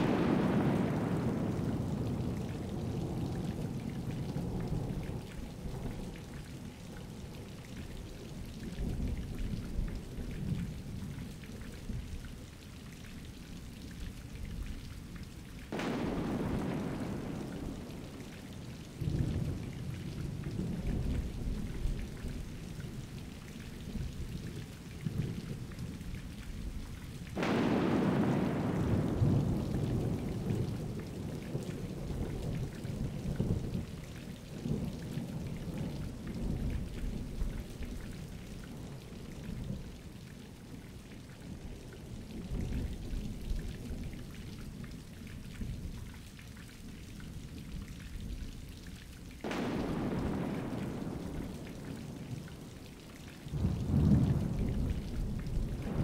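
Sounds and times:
sharp thunderclap: 0.0 - 2.3, 15.7 - 18.2, 27.4 - 30.4, 49.4 - 52.2
low rolling thunder: 0.0 - 12.0, 15.7 - 26.8, 27.4 - 40.8, 49.4 - 56.0
steady rain: 0.0 - 56.0.

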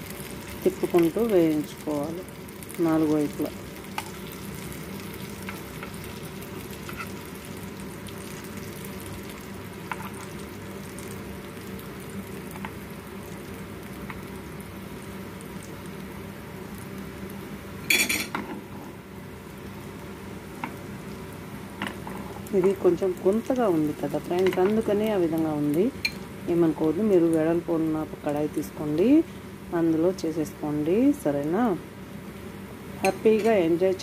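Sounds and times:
food sizzling in a pan: 0.0 - 34.0.

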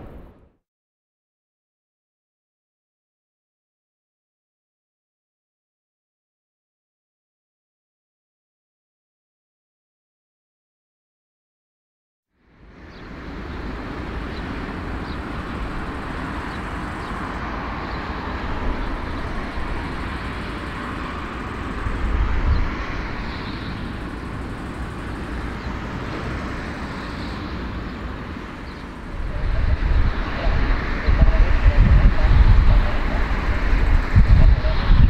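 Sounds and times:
jet engines taxiing: 12.5 - 35.0.

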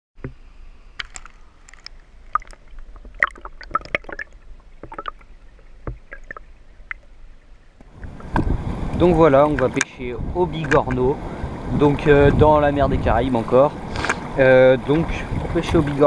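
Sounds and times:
water drips and pops: 1.0 - 7.2
water gurgling and plopping: 1.0 - 16.0.

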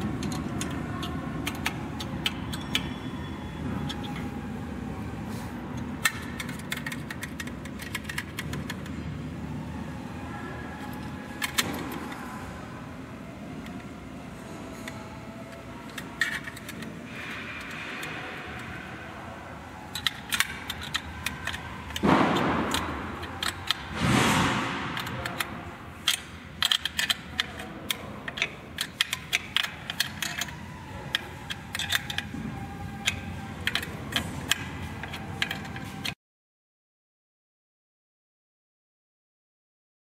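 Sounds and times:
machine-room hum: 0.0 - 36.2
small metal parts clinking: 25.0 - 36.1.

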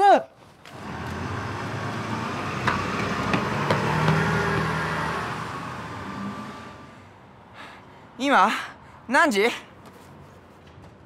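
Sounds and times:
bus engine running and pulling away: 0.6 - 7.4.

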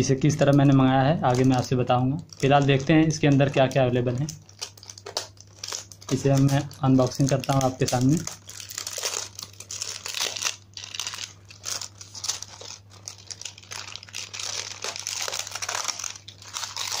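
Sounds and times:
plastic packaging crinkling: 0.3 - 17.0.

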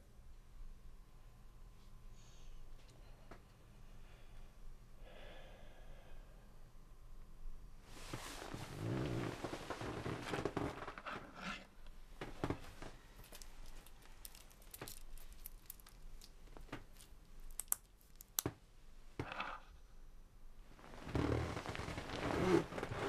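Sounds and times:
bedding rustling: 7.9 - 11.2, 12.1 - 14.2.

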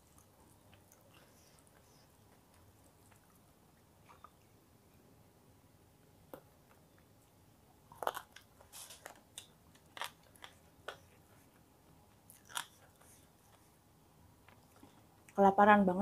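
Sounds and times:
person chewing crunchy food: 6.3 - 13.8.

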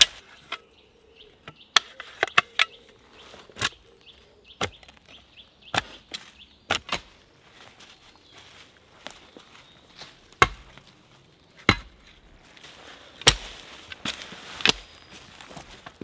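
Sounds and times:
mattocks chopping into soil: 5.7 - 7.2, 10.3 - 10.8, 11.6 - 12.1, 13.2 - 15.0.

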